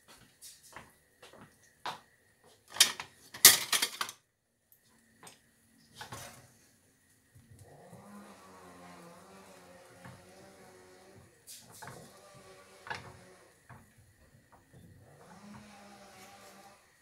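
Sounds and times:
utensils and dishes clattering: 2.7 - 4.2.

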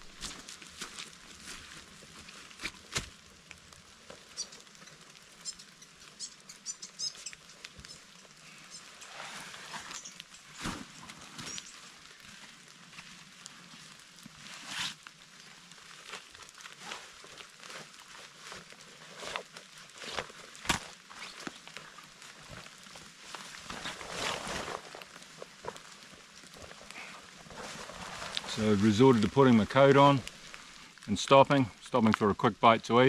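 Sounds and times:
footsteps crunching on a track: 0.0 - 3.1.

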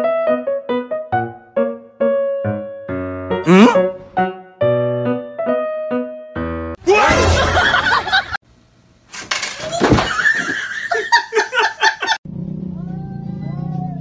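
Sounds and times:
people laughing loudly: 6.9 - 8.4, 10.0 - 12.2.

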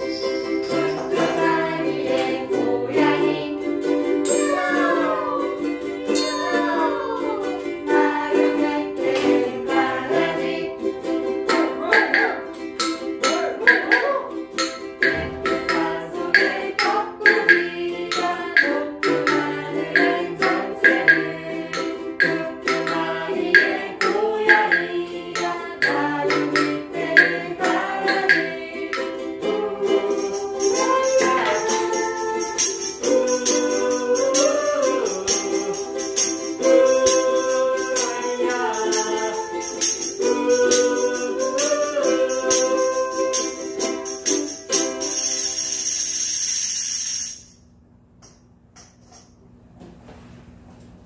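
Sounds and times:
tambourine jingling: 0.0 - 2.2, 4.2 - 5.2, 6.1 - 7.0, 29.8 - 49.4
group singing children's song: 0.0 - 46.9
ukulele ensemble: 0.0 - 47.5.

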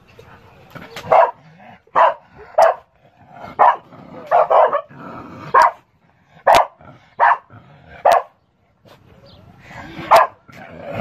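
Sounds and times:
dog barking: 1.0 - 2.9, 3.6 - 4.9, 5.5 - 5.8, 6.4 - 8.4, 10.1 - 10.4.

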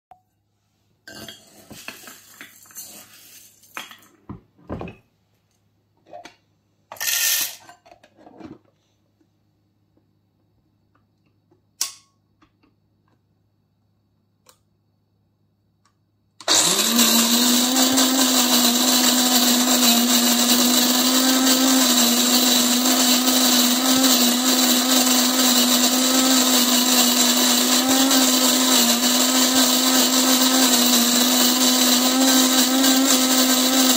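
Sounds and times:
coffee grinder grinding: 16.4 - 33.9.

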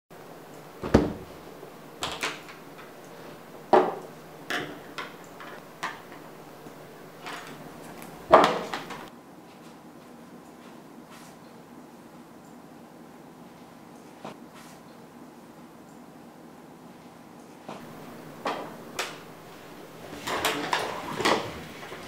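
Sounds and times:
objects knocking on table: 3.7 - 6.3, 7.2 - 9.1.

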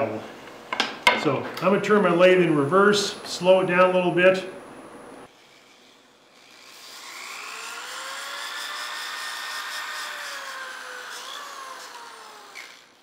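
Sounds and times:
sanding motor whine: 5.3 - 13.0.

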